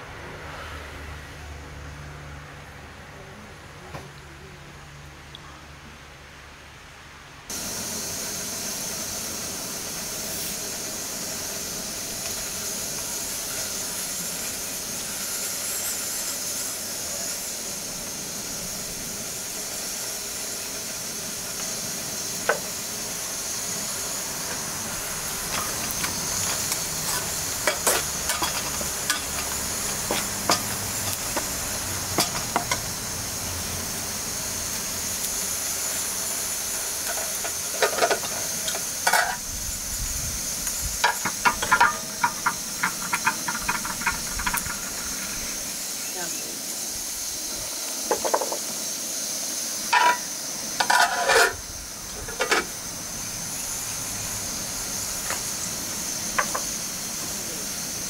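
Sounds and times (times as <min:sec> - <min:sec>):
food sizzling in a pan: 0:07.5 - 0:58.0
utensil scraping a pan: 0:24.5 - 0:31.5, 0:37.0 - 0:39.4, 0:41.0 - 0:45.4, 0:49.9 - 0:51.6.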